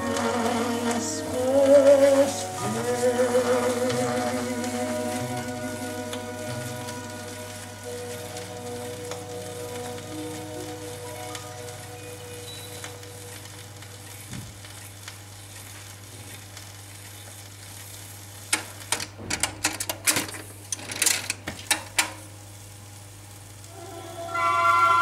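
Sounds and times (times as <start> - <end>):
music from record: 0.0 - 14.8, 23.7 - 25.0
record surface crackle and hiss: 0.0 - 25.0.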